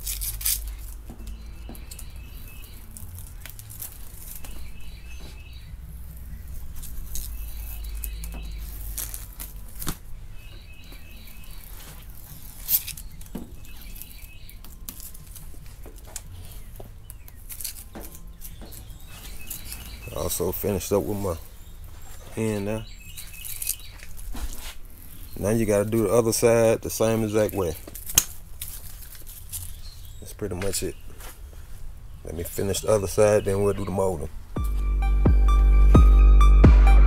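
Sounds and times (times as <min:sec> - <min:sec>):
tape peeling and crinkling: 0:00.0 - 0:32.8
high chirps: 0:00.6 - 0:09.6, 0:32.9 - 0:37.0.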